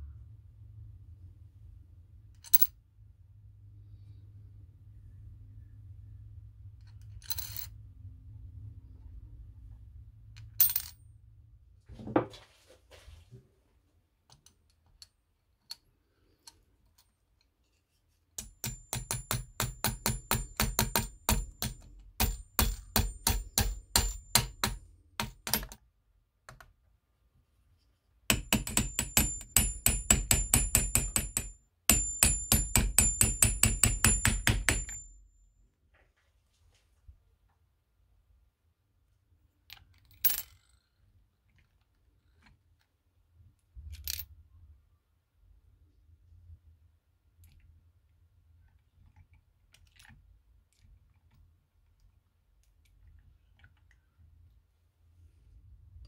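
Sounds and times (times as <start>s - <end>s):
metal clink: 10.6s - 11.0s.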